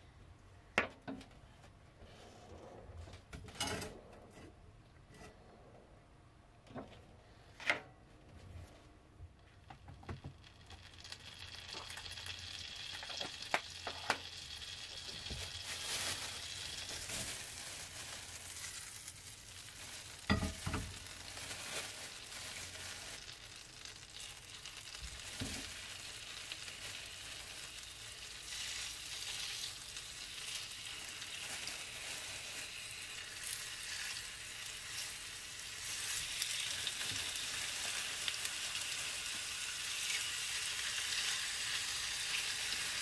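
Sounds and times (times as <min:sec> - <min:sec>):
butter sizzling in frying pan: 0:10.2 - 0:43.0.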